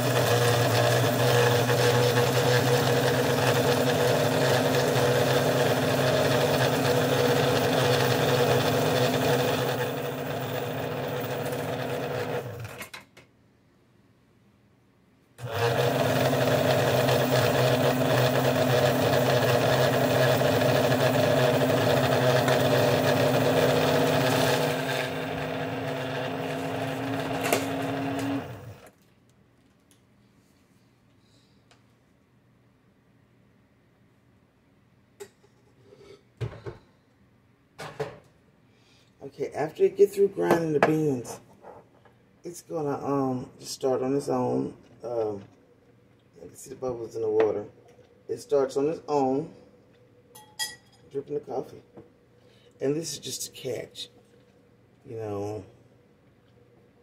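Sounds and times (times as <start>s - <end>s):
coffee grinder motor whirring: 0.0s - 12.8s, 15.4s - 28.9s.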